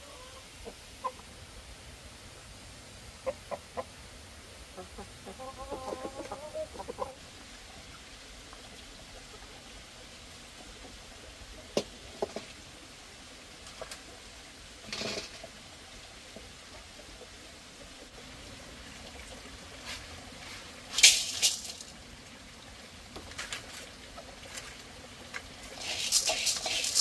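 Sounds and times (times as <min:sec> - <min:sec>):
chickens clucking: 0:00.0 - 0:01.4, 0:03.2 - 0:04.0, 0:04.6 - 0:08.0, 0:10.6 - 0:12.6.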